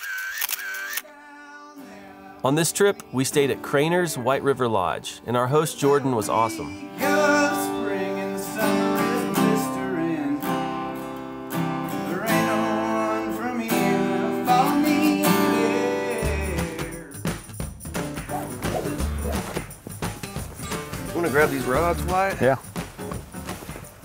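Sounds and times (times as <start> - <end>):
man singing: 0.7 - 10.7, 11.9 - 17.3
acoustic guitar strumming: 1.8 - 24.0.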